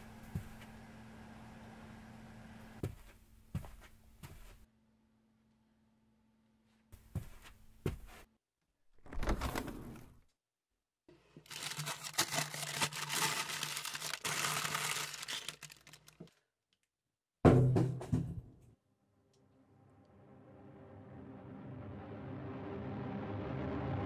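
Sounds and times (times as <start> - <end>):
plastic packaging crinkling: 11.4 - 16.5.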